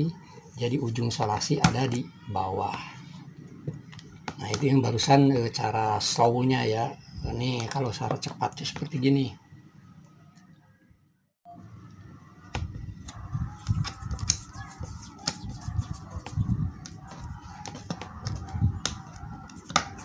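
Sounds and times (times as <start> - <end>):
dull thumps of hands handling wires: 15.2 - 20.0
tape crackling and clicking: 16.8 - 20.0.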